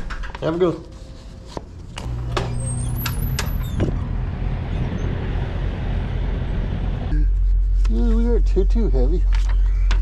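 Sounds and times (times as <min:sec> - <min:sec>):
vehicle rumble outdoors: 0:02.1 - 0:08.6.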